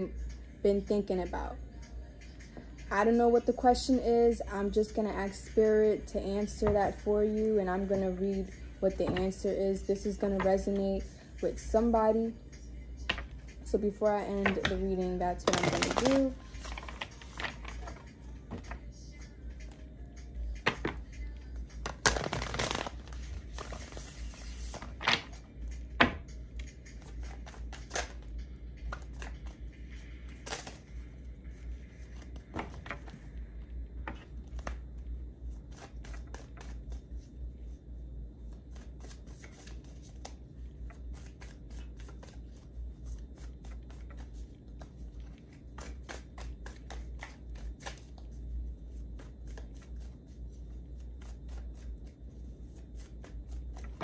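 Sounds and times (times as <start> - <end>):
cards fluttering: 15.4 - 18.8, 21.8 - 25.8.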